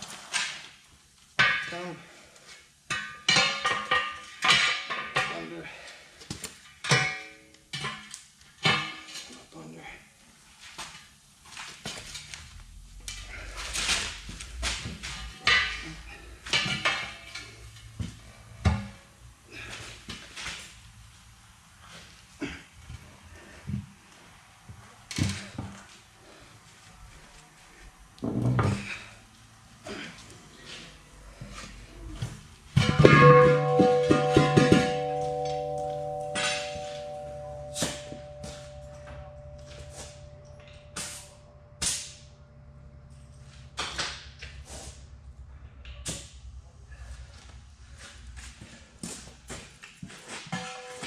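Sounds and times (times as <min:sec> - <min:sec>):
metal tools clanking on wheel rim: 0:13.1 - 0:19.0, 0:30.7 - 0:41.3
ringing metal tones: 0:14.9 - 0:19.0, 0:32.0 - 0:43.1, 0:50.5 - 0:51.0
low hum: 0:30.9 - 0:43.8
metal-on-metal knocks: 0:32.7 - 0:41.0.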